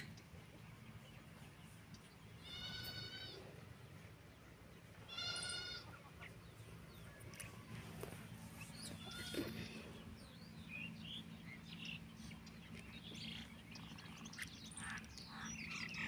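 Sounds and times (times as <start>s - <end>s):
high-pitched animal cries: 2.4s - 3.4s, 5.1s - 5.9s.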